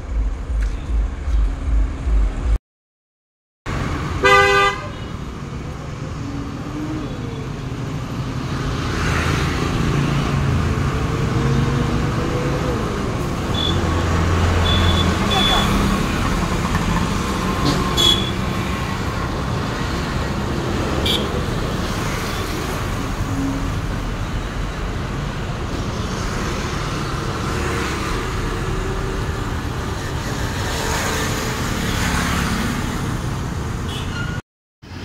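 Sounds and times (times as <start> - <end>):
roadside traffic noise: 0.0 - 2.6, 3.7 - 35.0.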